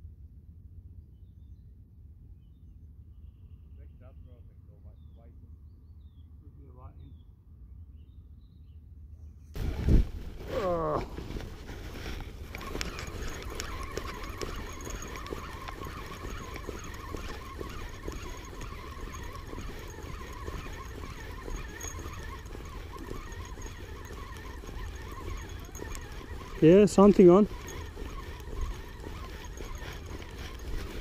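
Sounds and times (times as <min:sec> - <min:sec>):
faint high squeaks: 0:09.6 - 0:31.0
small clicks: 0:10.6 - 0:31.0.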